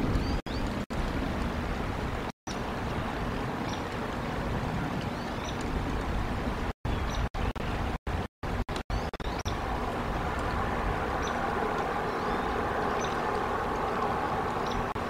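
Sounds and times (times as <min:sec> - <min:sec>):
outdoor rushing noise: 0:07.4 - 0:15.0.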